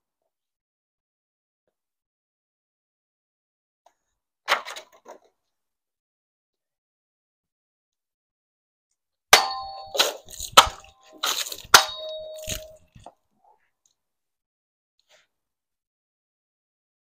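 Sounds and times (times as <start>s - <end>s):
sword striking plastic jug: 9.4s - 13.0s.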